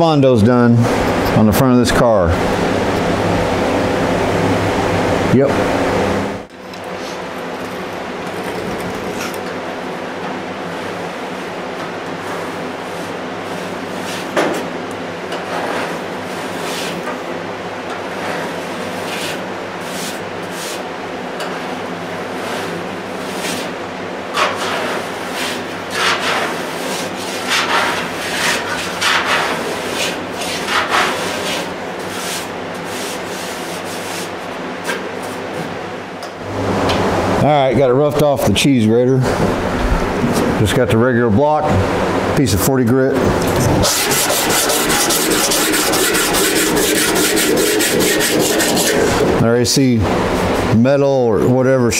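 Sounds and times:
file rasping body filler: 24.4s - 34.4s, 43.8s - 49.4s.

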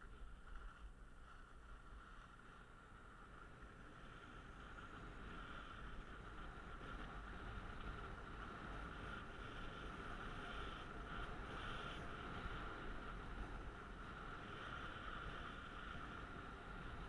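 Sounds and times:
skis sliding over snow: 0.0s - 17.0s.

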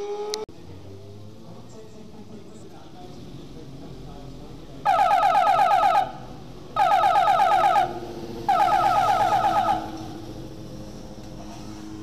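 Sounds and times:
warbling electronic warning signal: 4.9s - 10.0s.

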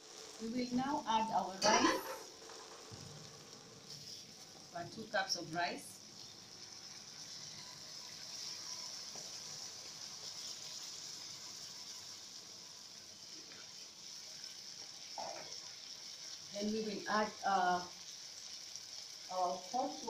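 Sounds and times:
stew simmering in a pot: 0.0s - 20.0s
rice pouring into a pot: 2.0s - 5.2s, 5.8s - 20.0s.

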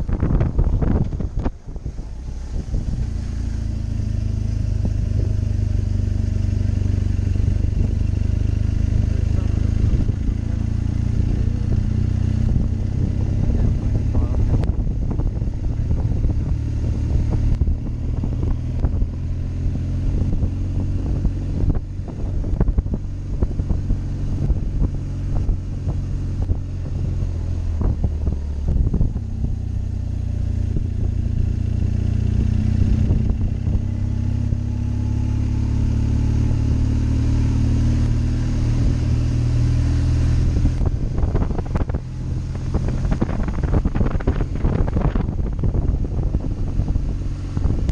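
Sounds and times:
wind buffeting microphone: 0.0s - 36.4s, 38.2s - 47.9s
motorcycle engine running: 0.0s - 47.9s.

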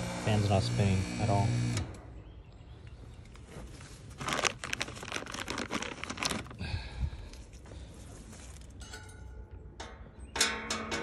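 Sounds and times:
crackling rustling clicks: 3.2s - 6.6s.

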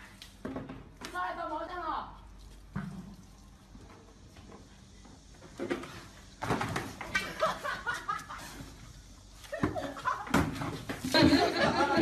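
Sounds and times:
people laughing: 7.1s - 8.7s, 9.4s - 10.4s, 11.0s - 12.0s.

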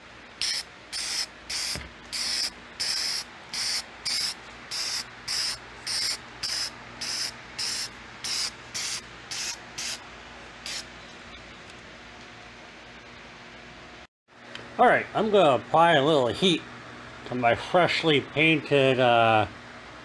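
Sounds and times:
aerosol can spraying: 0.4s - 10.0s, 10.7s - 10.9s.

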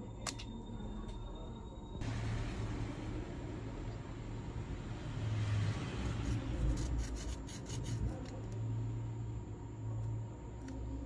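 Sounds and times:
steady low hum: 0.0s - 11.0s
metal tool scraping phone frame: 6.2s - 8.4s.

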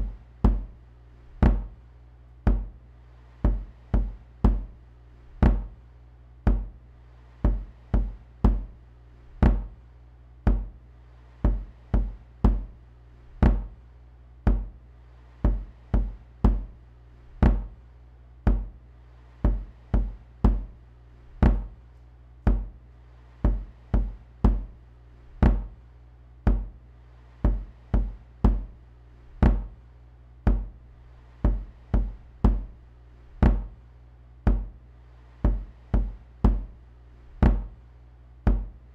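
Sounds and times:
electronic drum beat: 1.4s - 1.7s, 13.4s - 13.7s, 17.4s - 17.7s, 21.4s - 21.8s, 25.4s - 25.8s, 29.4s - 29.8s, 31.4s - 32.8s, 33.4s - 33.8s, 37.4s - 37.8s.

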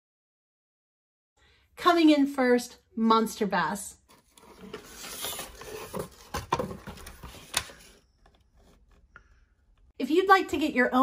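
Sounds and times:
cardboard box rustling and scraping: 4.1s - 9.0s.

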